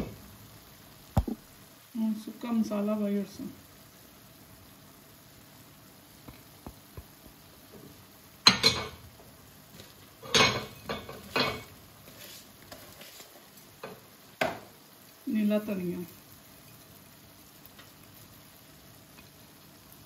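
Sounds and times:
dishes and utensils clattering: 8.5s - 9.0s, 10.2s - 11.7s.

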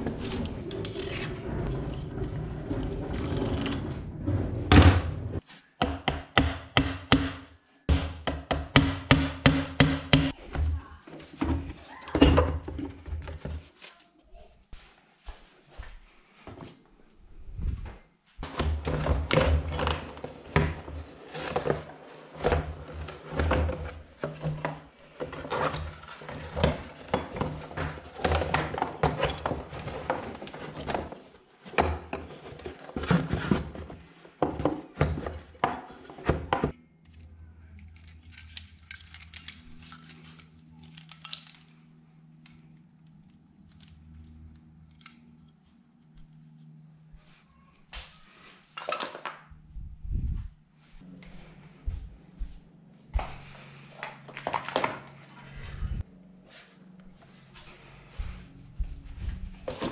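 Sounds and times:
low hum: 49.5s - 59.8s.

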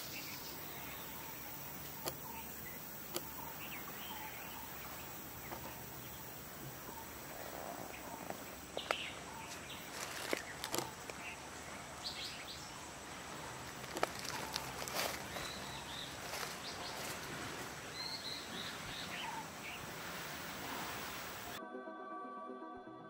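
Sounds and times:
faint bird calls: 0.0s - 21.6s
steady background hiss: 0.0s - 21.6s
sharp snaps and rustles: 8.2s - 11.3s, 13.6s - 17.6s.

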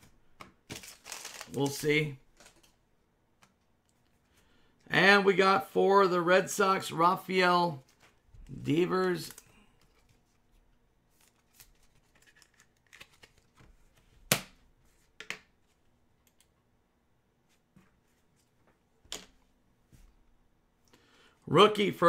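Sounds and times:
cards rustling and sliding: 0.4s - 2.8s, 7.8s - 15.8s.

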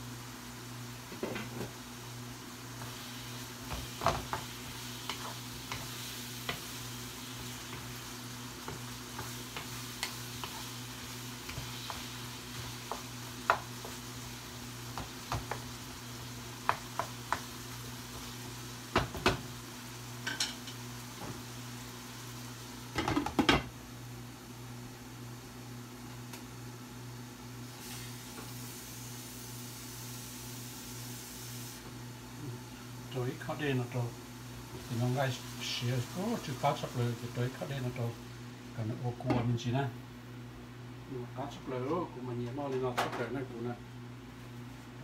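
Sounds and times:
food sizzling in frying pan: 0.0s - 40.5s.

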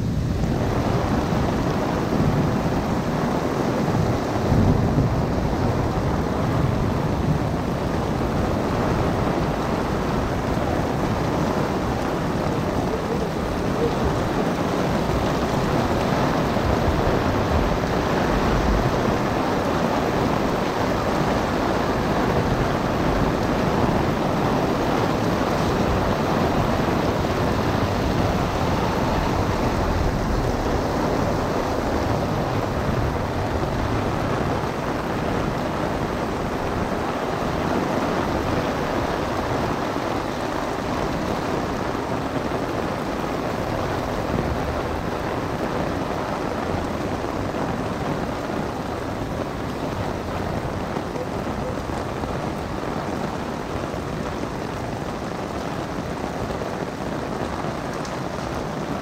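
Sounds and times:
heavy rain on an umbrella: 0.0s - 59.0s
wind rumbling on microphone: 0.0s - 59.0s.

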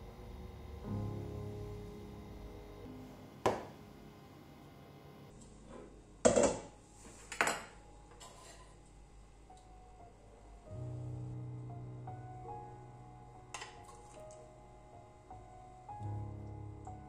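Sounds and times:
tableware clinking: 7.3s - 8.7s.

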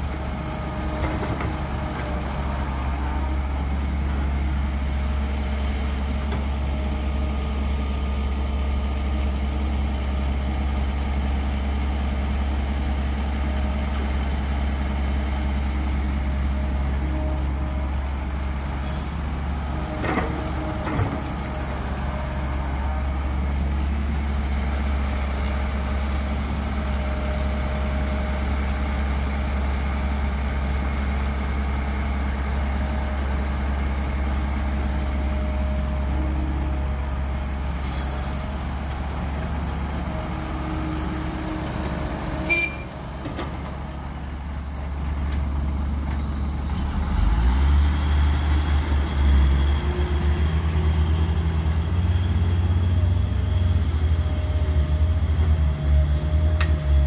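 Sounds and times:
dump truck diesel engine: 0.0s - 57.0s
excavator diesel engine: 0.0s - 57.0s.

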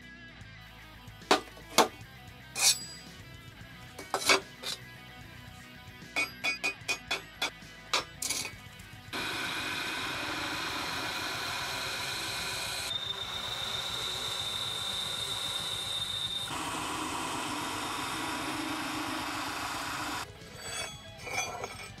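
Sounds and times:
drill press whirring: 9.1s - 21.9s
high squeal from drill bit: 9.2s - 21.1s.

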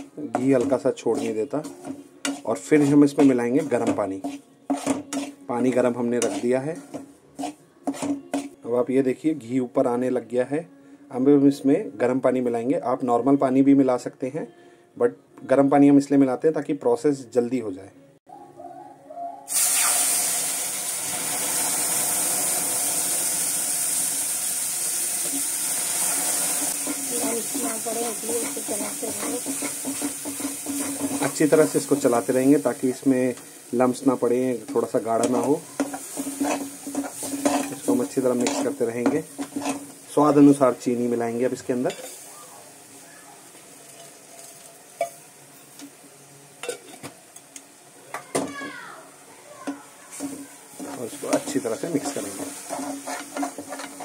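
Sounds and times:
metal scraping and clinking on pan: 0.0s - 8.6s, 26.5s - 32.2s, 34.6s - 40.5s, 41.7s - 42.2s, 50.1s - 54.0s
spoon stirring in a pan: 0.0s - 8.6s, 26.2s - 42.3s, 49.6s - 54.0s
water sizzling in hot fat: 0.0s - 8.6s, 19.5s - 54.0s.

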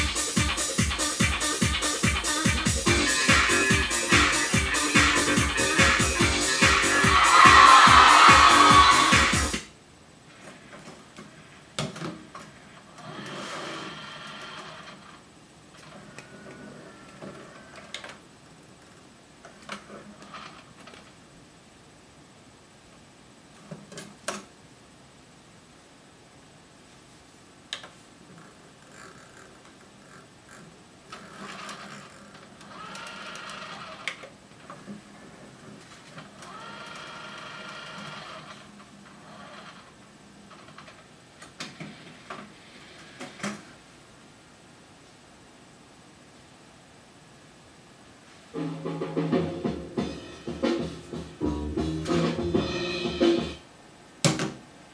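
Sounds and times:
music: 0.0s - 9.7s, 48.6s - 53.7s
motor whirring with a thin whine: 28.8s - 40.9s.

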